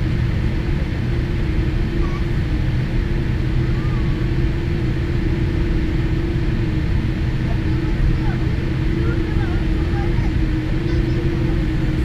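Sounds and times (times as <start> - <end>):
airplane cabin rumble and hum: 0.0 - 12.0.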